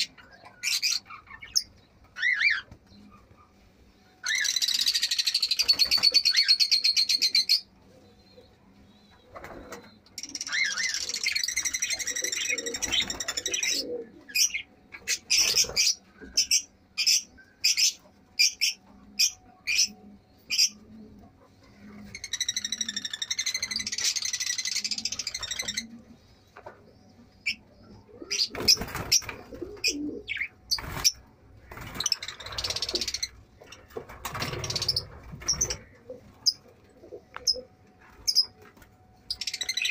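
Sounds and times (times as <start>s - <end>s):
birds chattering shrill chirps: 4.1s - 20.8s, 21.8s - 26.4s, 27.4s - 38.6s, 39.2s - 39.9s.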